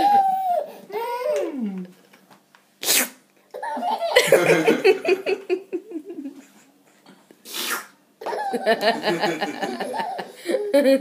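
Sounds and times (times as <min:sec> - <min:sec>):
baby giggling: 0:03.5 - 0:05.3, 0:08.2 - 0:11.0
short hissing burst: 0:07.4 - 0:08.0.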